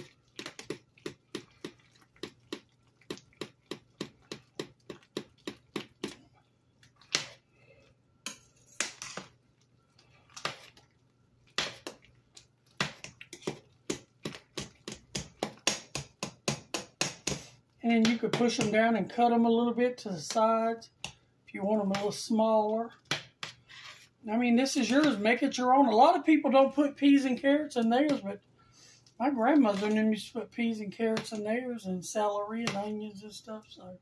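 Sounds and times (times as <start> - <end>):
spoon scraping a pot: 23.4 - 24.2.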